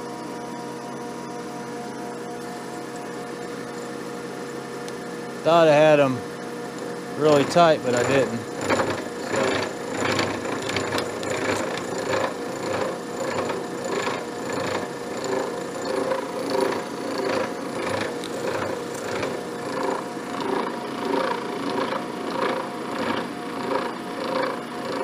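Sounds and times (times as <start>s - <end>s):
milling machine hum: 0.0s - 25.0s
milling cutter pulsing cut: 7.2s - 25.0s.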